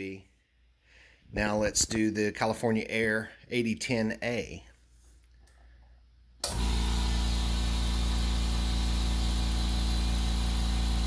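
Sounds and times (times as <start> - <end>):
air compressor running: 6.4 - 11.0.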